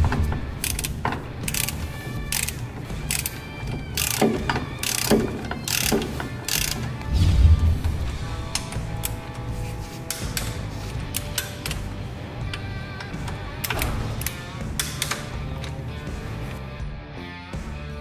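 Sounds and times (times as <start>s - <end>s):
ratchet wrench clicking: 0.6s - 7.1s, 10.0s - 15.8s.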